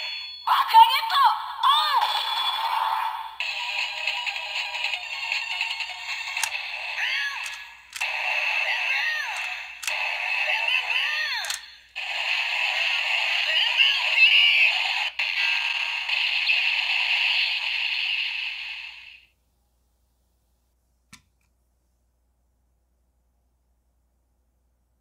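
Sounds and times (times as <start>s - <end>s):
toy sound effects and music: 0.0s - 19.2s.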